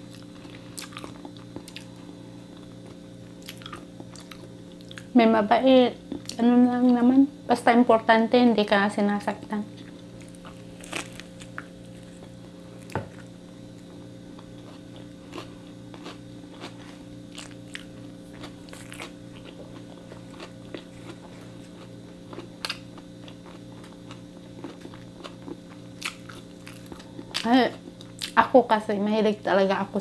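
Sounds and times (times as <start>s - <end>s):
person chewing crunchy sandwich: 0.0s - 5.1s, 9.8s - 28.4s.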